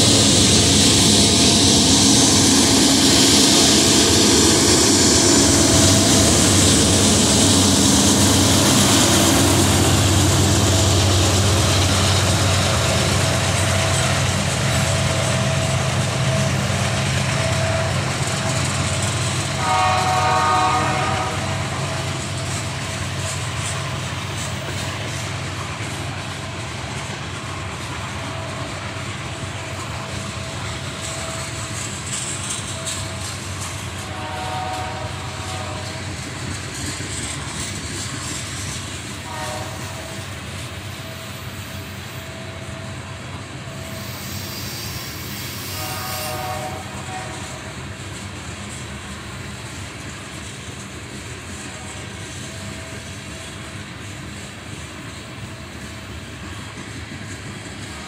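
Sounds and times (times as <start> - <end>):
locomotives rumbling past: 0.0 - 43.6
train wheels clattering on rails: 0.0 - 58.0
train horn blast: 19.4 - 22.2, 33.9 - 36.1, 39.2 - 40.3, 45.7 - 47.8.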